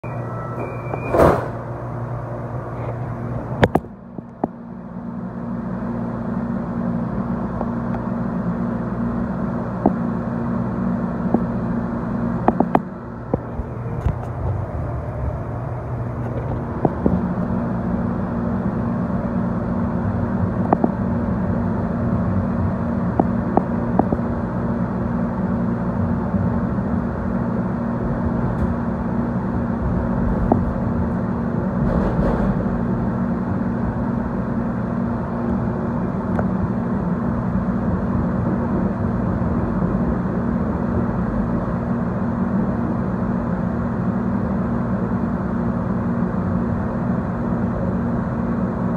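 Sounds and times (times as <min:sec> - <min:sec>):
light rail car running hum: 0:00.0 - 0:48.9
track clicks and knocks: 0:03.6 - 0:04.6, 0:12.4 - 0:14.6, 0:16.2 - 0:17.5, 0:23.1 - 0:24.3.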